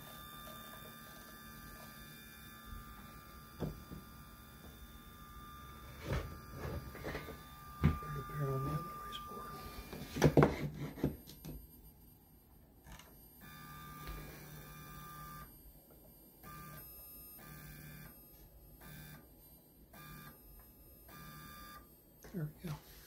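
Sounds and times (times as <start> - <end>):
stepper motors humming: 0.0 - 10.4.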